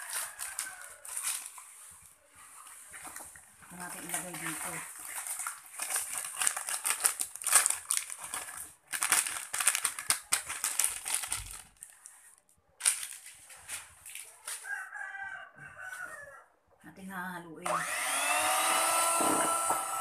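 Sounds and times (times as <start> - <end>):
plastic packaging crinkling: 0.0 - 14.8.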